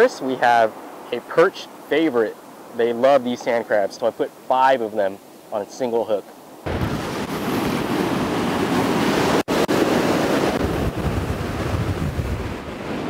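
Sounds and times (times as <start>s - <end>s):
ocean surf breaking: 0.0s - 13.0s
wind buffeting microphone: 6.6s - 13.0s.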